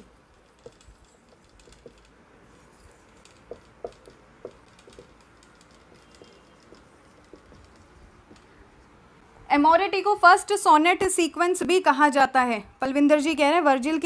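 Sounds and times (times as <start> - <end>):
marker writing on whiteboard: 0.5 - 8.6.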